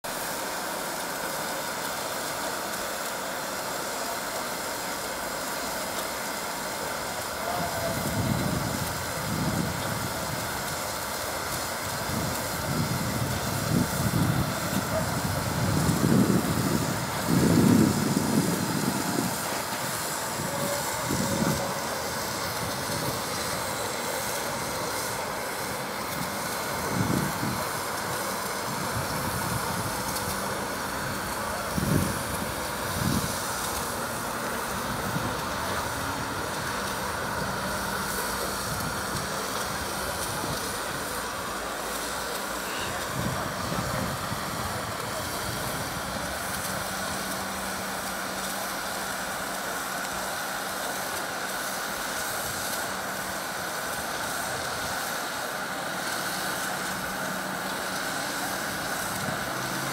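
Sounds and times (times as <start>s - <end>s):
steam hissing: 0.0s - 59.9s.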